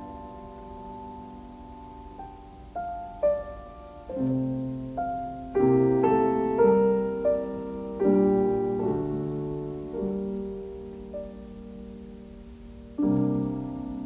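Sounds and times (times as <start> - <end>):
gentle piano melody: 0.0 - 14.0.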